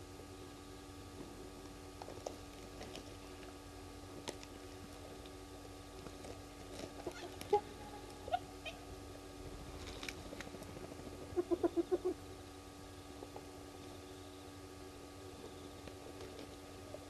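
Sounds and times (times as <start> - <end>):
hyenas calling and yelping: 7.2 - 8.9.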